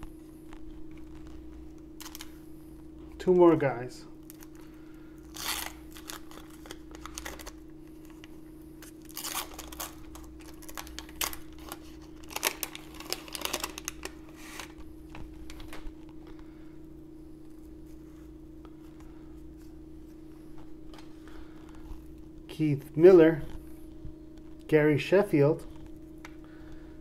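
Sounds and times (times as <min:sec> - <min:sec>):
wax paper wrapper tearing: 0:00.5 - 0:02.4, 0:04.2 - 0:16.1.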